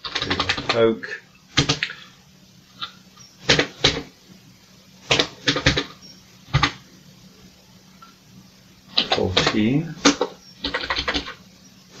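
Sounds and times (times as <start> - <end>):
keyboard keys clacking: 9.0 - 11.4.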